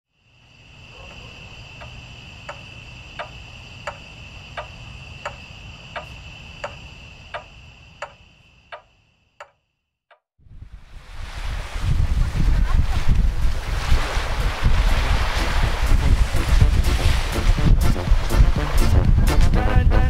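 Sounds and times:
clock-like ticks: 3.2s - 4.0s, 4.6s - 5.4s, 6.0s - 9.6s
low rumble: 14.6s - 20.0s.

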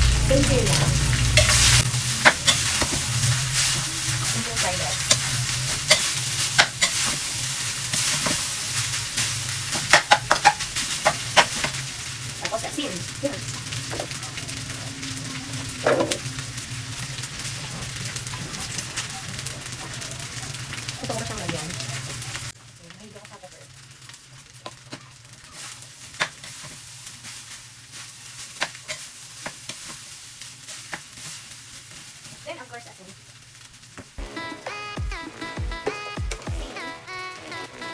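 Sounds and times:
spatula scraping wok: 0.0s - 22.6s, 24.6s - 32.4s
rice sizzling in a wok: 0.0s - 37.9s
metal spatula clinking on pan: 5.8s - 7.0s.

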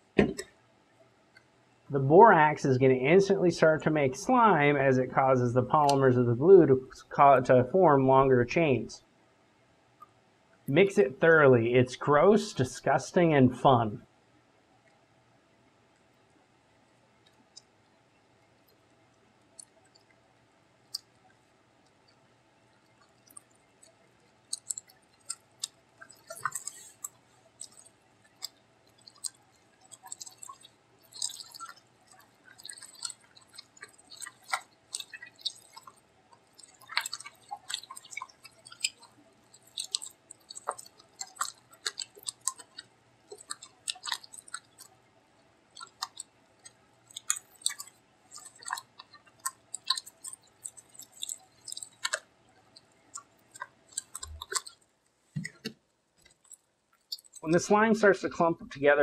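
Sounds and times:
slime squelching: 22.8s - 54.8s, 55.4s - 57.9s.

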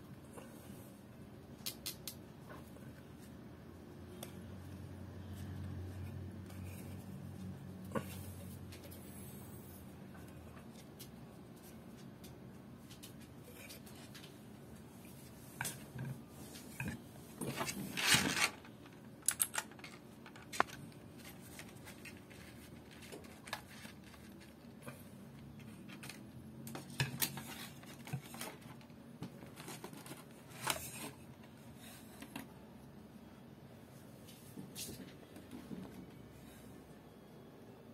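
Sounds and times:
plastic packaging rustling and tearing: 17.4s - 24.6s.

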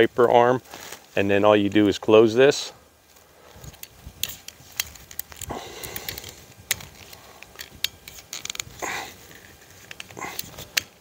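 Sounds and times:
plastic rubbing: 3.6s - 11.0s.

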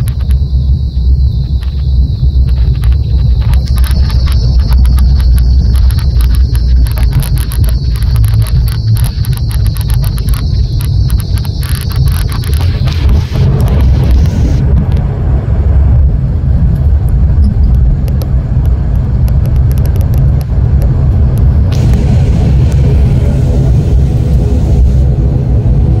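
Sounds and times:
jet rolling down runway rumble: 0.0s - 26.0s
steady engine tones: 0.0s - 26.0s
hiss: 21.7s - 26.0s.

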